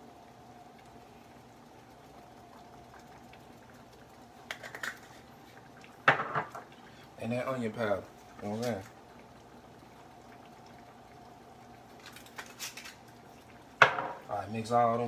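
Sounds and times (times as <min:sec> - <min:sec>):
faint steady hum: 0:00.0 - 0:15.0
bottle knocking on counter: 0:06.1 - 0:06.6, 0:13.8 - 0:14.2.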